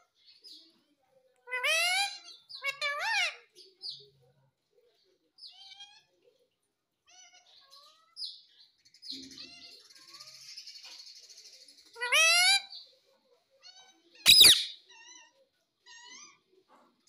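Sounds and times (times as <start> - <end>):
parakeet raspy chatter: 13.7 - 15.3
parakeet chirping: 14.3 - 14.8.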